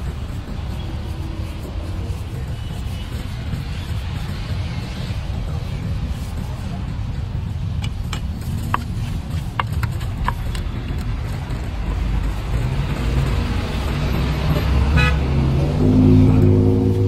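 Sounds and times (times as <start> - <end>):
vehicle engine approaching: 10.0 - 17.0
car horn toot: 14.9 - 15.3.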